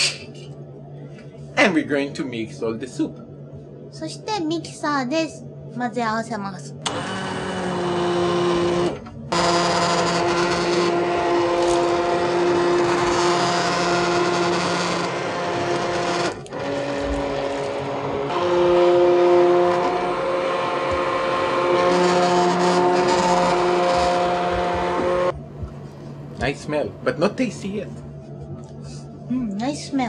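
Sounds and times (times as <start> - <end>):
immersion blender motor whine: 6.8 - 25.4.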